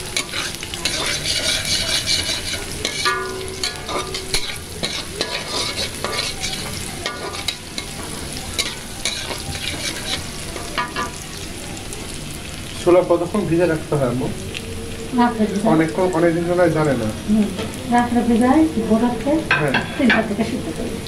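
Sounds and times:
spatula scraping a wok: 0:00.0 - 0:11.2
onions sizzling in hot oil: 0:00.0 - 0:21.0.

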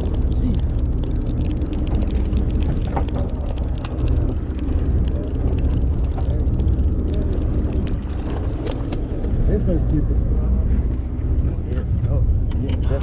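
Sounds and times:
fishing reel clicking: 0:00.0 - 0:08.9
boat engine drone: 0:00.0 - 0:13.0.

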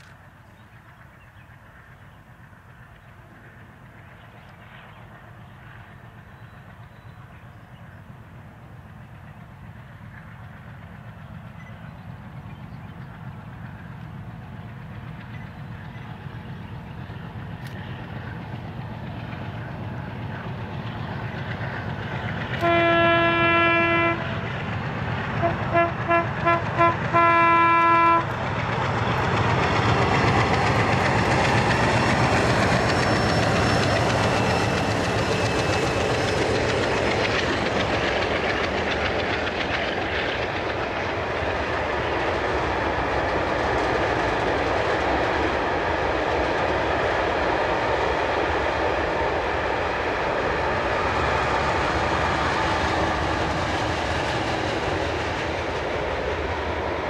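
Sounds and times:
diesel locomotive engines passing: 0:00.0 - 0:57.0
train horn blasts: 0:22.6 - 0:24.4, 0:25.4 - 0:28.3.

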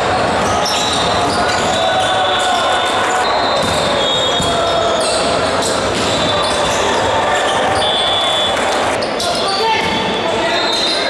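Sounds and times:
volleyballs hit and bouncing: 0:00.0 - 0:09.1.

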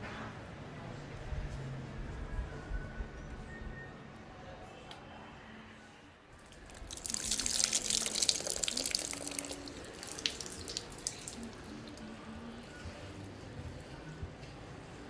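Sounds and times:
water dripping: 0:06.4 - 0:12.1
water pouring and splashing: 0:06.4 - 0:12.1.

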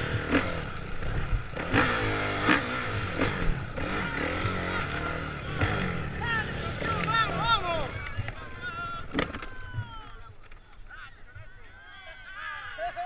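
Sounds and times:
motorcycle engine revving: 0:00.0 - 0:09.4.

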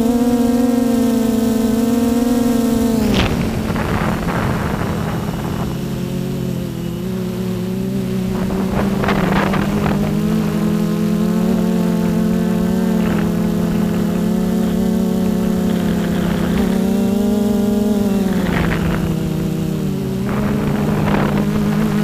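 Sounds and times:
drone motor whine: 0:00.0 - 0:22.0
rushing air from propellers: 0:01.2 - 0:22.0.

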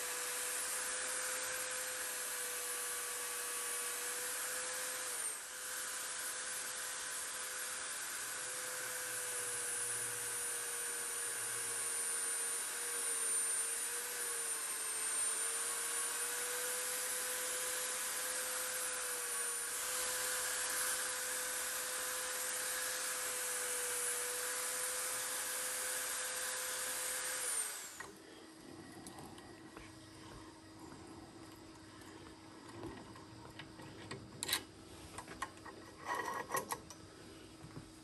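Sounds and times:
motor winding down: 0:00.0 - 0:28.3
drill press motor whine: 0:00.0 - 0:38.0.

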